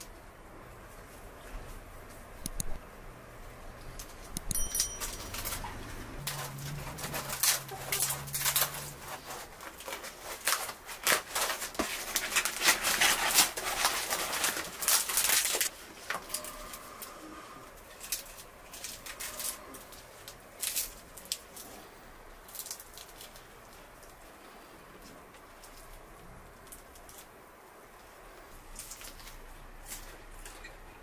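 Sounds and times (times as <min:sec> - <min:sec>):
flatbread crackling as torn: 0:06.2 - 0:17.1, 0:18.0 - 0:21.8.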